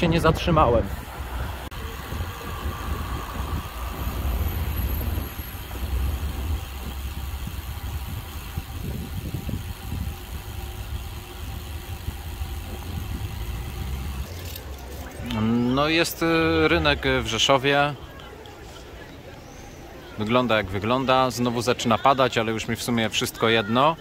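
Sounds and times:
road noise: 0.0 - 24.0
wind rumble: 0.9 - 15.6.

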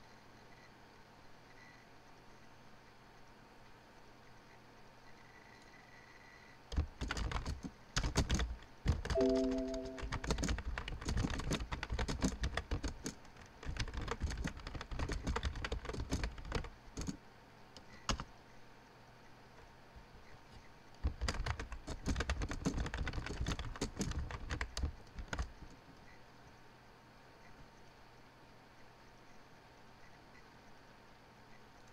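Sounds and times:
typing on computer keyboard: 6.7 - 17.2, 17.8 - 18.3, 21.0 - 25.8.

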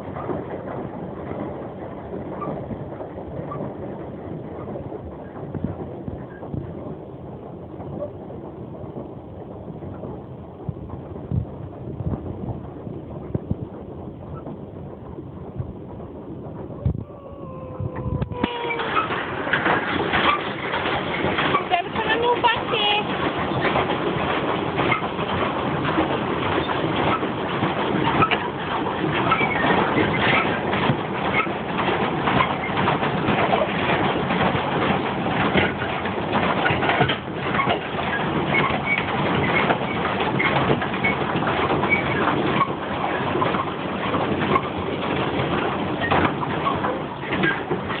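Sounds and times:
paddle wheel splashing water: 0.0 - 48.0
pedal drive clatter: 18.0 - 48.0.

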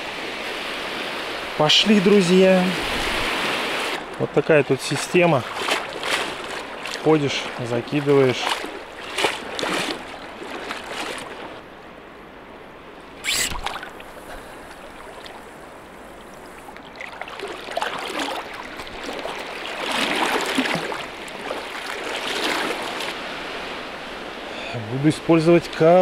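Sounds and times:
water sloshing around wading legs: 2.9 - 11.7, 13.1 - 23.2
sharp splash: 4.8 - 11.5, 13.2 - 14.2, 16.8 - 23.2.

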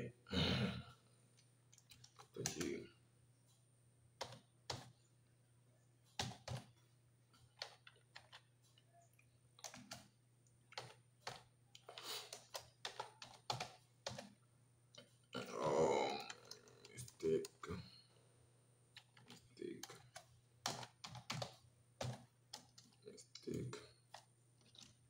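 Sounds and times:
keyboard typing clicks: 6.1 - 6.8, 7.4 - 10.1, 10.7 - 14.4, 19.0 - 23.5.

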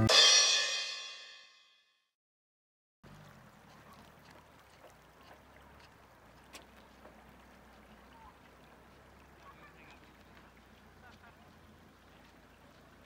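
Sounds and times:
stream trickling over stones: 3.0 - 13.0.

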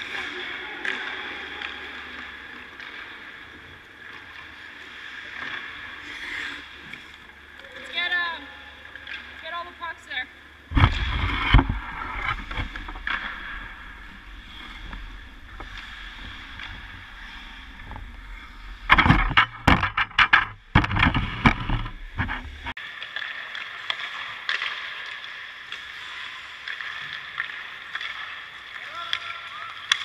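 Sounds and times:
ice rink hum: 0.0 - 30.0
knocks and scrapes on ice: 10.7 - 28.4
camera handling rumble: 18.8 - 22.7.

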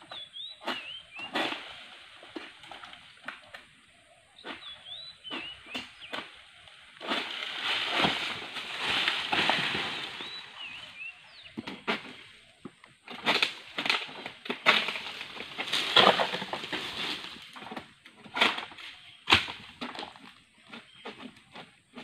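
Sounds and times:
sickle knocking on palm fronds: 5.3 - 6.4, 7.0 - 10.4, 13.1 - 19.7
palm frond falling and crashing: 6.9 - 10.9, 13.2 - 20.1.

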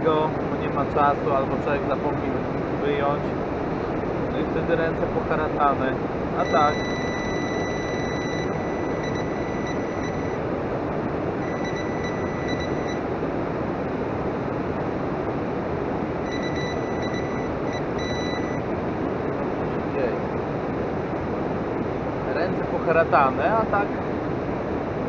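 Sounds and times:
steady rushing noise: 0.0 - 25.0
high electronic beep tone: 6.4 - 10.4, 11.4 - 13.0, 16.2 - 18.6.

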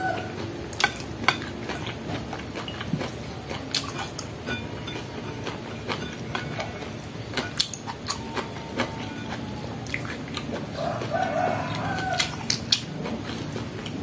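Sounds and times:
chicken calling: 0.0 - 0.4, 10.7 - 12.7
chewing crunchy fried food: 0.0 - 14.0.

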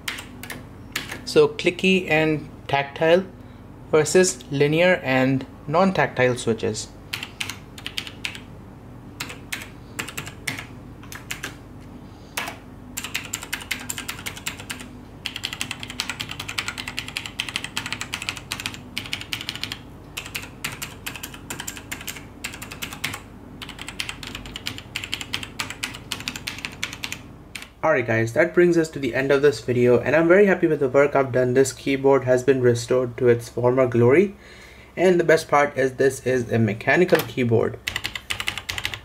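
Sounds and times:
fast typing on mechanical keyboard: 0.0 - 1.2, 7.1 - 8.5, 9.2 - 11.6, 12.4 - 27.7, 37.8 - 39.0.

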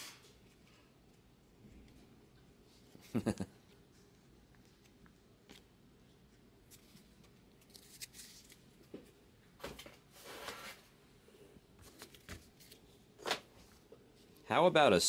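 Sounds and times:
cards rustling and shuffling: 4.5 - 9.0, 11.8 - 14.4.

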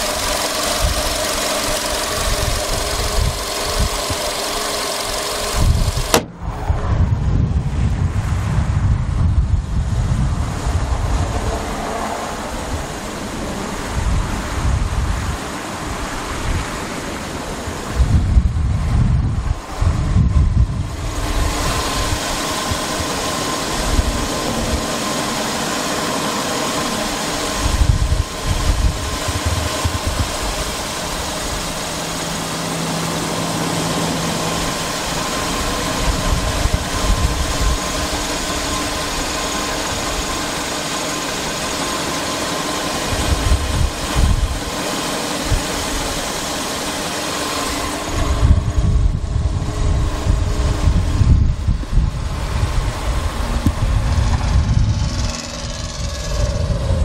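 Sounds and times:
wind buffeting microphone: 0.0 - 4.4, 5.0 - 32.7, 34.1 - 40.7, 43.0 - 44.8, 47.8 - 57.0
car engine idling: 0.0 - 6.7, 20.8 - 57.0.

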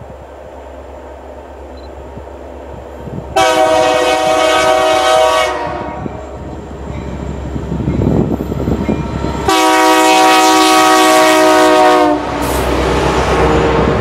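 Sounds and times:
locomotive engine and wheels rumbling: 0.0 - 14.0
locomotive air horn chord: 3.4 - 6.1, 9.5 - 12.6.

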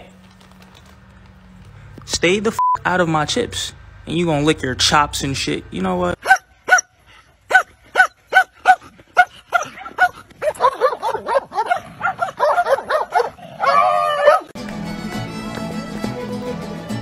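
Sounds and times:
dog barking: 6.2 - 6.9, 7.5 - 14.5
dog yipping and whining: 7.5 - 14.5
background music: 14.6 - 17.0.

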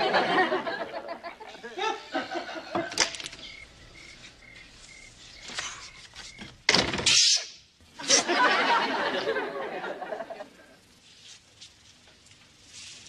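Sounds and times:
crickets chirping: 0.0 - 13.0
door thunk: 6.7 - 7.1.

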